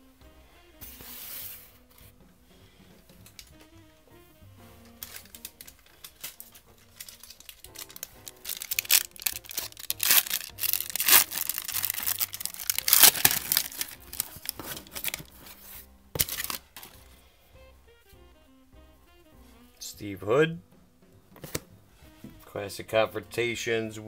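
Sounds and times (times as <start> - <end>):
soft background music: 0.0 - 24.0
foil wrapper tearing and crinkling: 4.9 - 15.6, 16.2 - 17.1.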